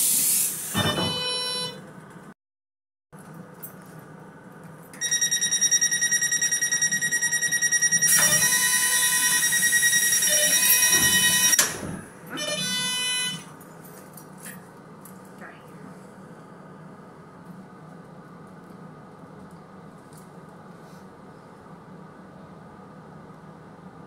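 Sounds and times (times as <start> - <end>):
air hissing: 0.0 - 0.8
electronic warning tone pulsing: 5.0 - 13.5.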